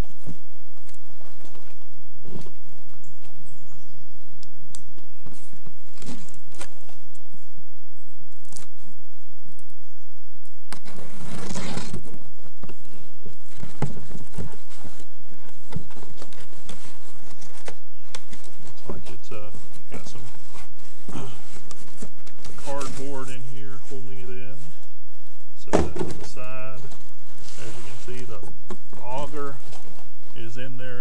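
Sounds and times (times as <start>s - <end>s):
cardboard tearing: 10.7s - 12.2s
cardboard box scraping and crinkling: 10.8s - 12.2s, 13.5s - 24.7s, 26.1s - 30.5s.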